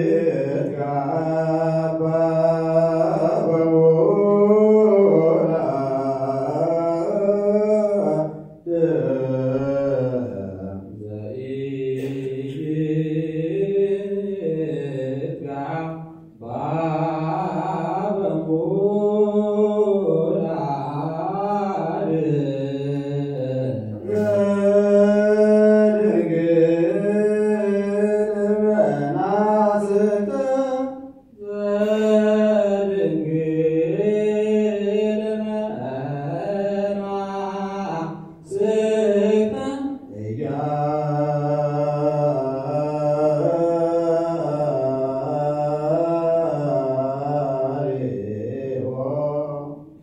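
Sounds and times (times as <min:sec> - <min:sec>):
voices chanting long held notes: 0:23.8 - 0:27.9.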